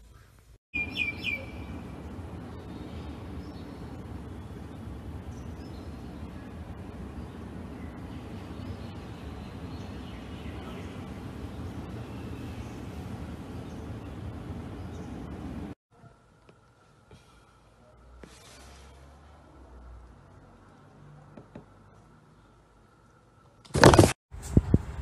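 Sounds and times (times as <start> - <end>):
low background rumble: 0.8 - 15.8.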